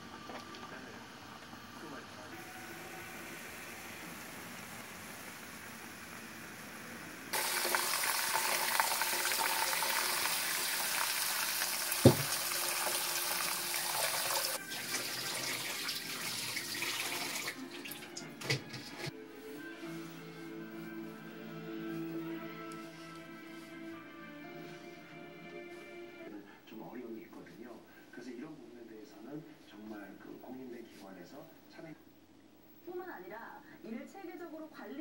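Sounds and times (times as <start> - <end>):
tap water running onto noodles: 0.0 - 18.1
knock: 12.0 - 12.4.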